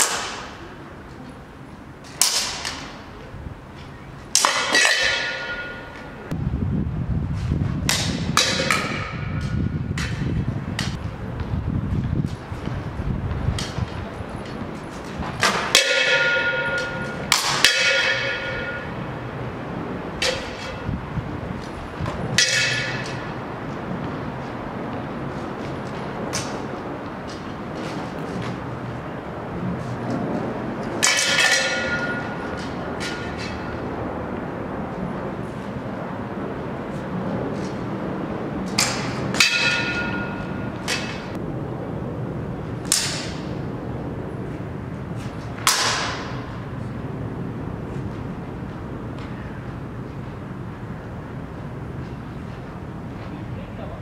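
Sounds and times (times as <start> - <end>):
metal swords clashing: 4.3 - 6.2, 15.4 - 19.0, 20.2 - 20.9, 22.3 - 23.4, 31.0 - 33.8, 38.7 - 41.4
steady low rumble: 5.3 - 54.0.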